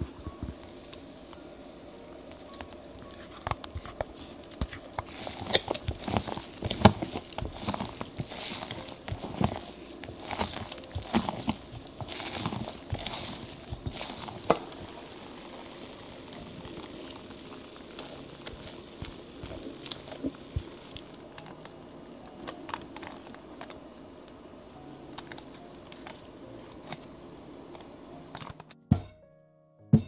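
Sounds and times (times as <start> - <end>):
spatula swishing and scraping batter: 5.0 - 14.8.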